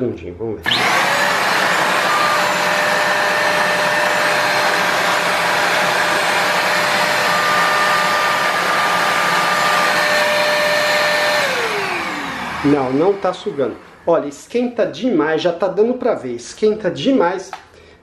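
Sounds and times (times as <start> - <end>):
motor spinning down: 0.6 - 14.1
vacuum cleaner motor whining: 0.6 - 14.2.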